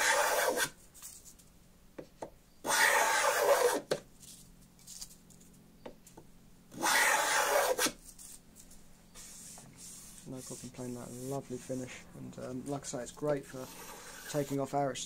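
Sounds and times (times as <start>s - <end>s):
hand plane shaving wood: 0.0s - 0.7s, 2.7s - 3.8s, 6.8s - 8.0s, 13.5s - 14.6s.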